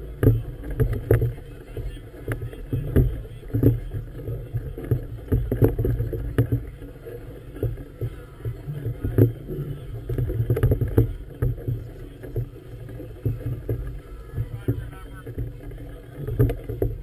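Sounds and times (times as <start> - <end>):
water slapping against hull: 0.0 - 17.0
wind buffeting camera: 0.0 - 17.0.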